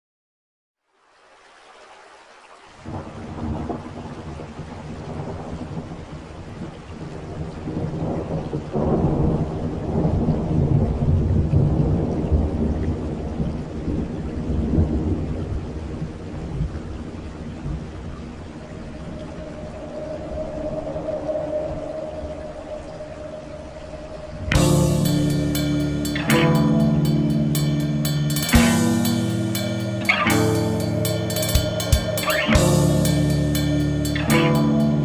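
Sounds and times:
rain hiss: 0.9s - 35.0s
low rolling thunder: 2.9s - 16.9s.

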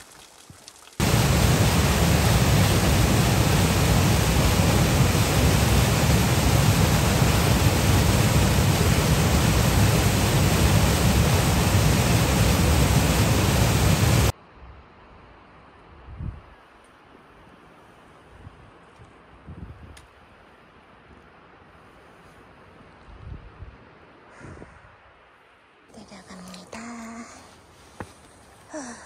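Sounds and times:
loud steady rushing noise: 1.0s - 14.3s.

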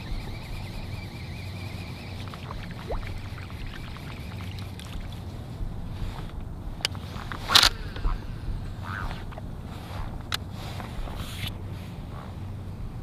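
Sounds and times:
fishing reel spool whining: 0.0s - 9.4s
low hum: 0.0s - 13.0s.

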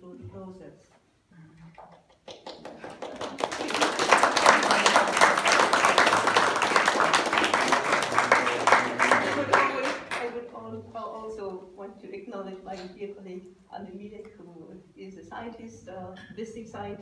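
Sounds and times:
audience applauding: 2.2s - 10.4s.

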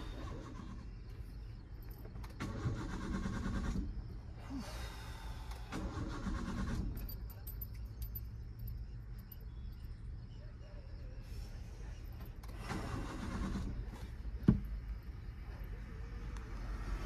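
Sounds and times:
car starter motor cranking: 0.0s - 1.1s, 1.8s - 4.1s, 5.4s - 8.0s, 12.2s - 14.1s.

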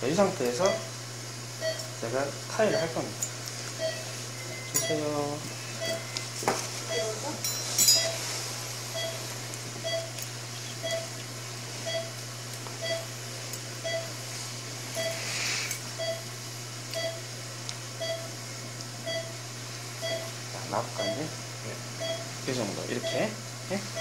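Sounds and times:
low equipment hum: 0.0s - 24.0s
patient monitor beeping: 0.5s - 1.0s, 1.6s - 1.9s, 2.6s - 3.2s, 3.8s - 8.3s, 8.9s - 11.2s, 11.8s - 12.2s, 12.8s - 13.1s, 13.8s - 14.1s, 14.9s - 15.3s, 16.0s - 16.3s, 16.9s - 17.2s, 18.0s - 18.3s, 19.0s - 19.4s, 20.0s - 21.3s, 22.0s - 23.4s.

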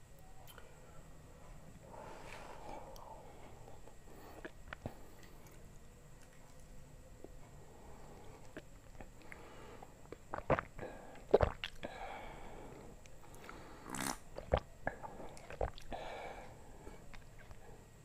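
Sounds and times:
person sipping and swallowing: 4.2s - 5.0s, 8.3s - 12.0s, 13.3s - 16.2s.

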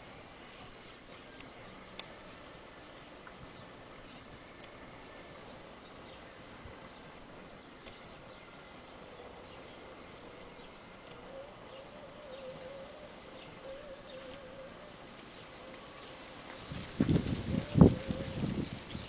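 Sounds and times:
wavering hum: 0.0s - 19.0s
faint bird chirps: 2.9s - 16.7s
wind buffeting microphone: 16.6s - 19.0s.

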